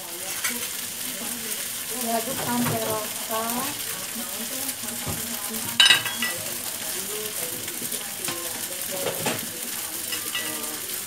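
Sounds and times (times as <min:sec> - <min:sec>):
noodles sizzling in wok: 0:00.0 - 0:11.0
spatula clanking against wok: 0:05.0 - 0:06.5.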